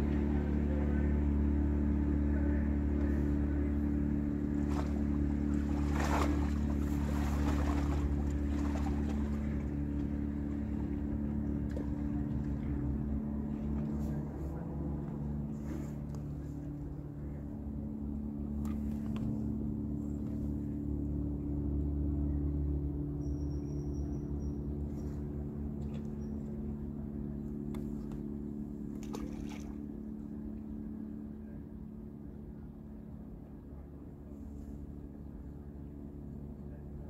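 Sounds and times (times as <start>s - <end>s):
distant engine hum: 0.0s - 37.0s.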